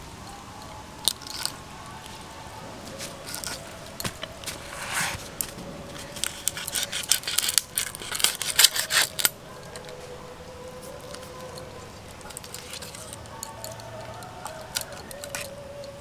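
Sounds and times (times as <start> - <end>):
prawn shells cracking: 0.5 - 2.2, 2.9 - 4.6, 5.2 - 16.0
prawn shell scraping: 0.6 - 16.0.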